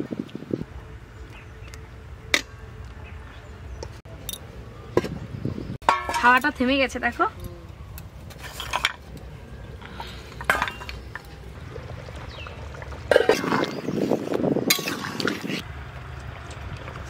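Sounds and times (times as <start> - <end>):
ladle scraping pot: 8.3 - 9.1.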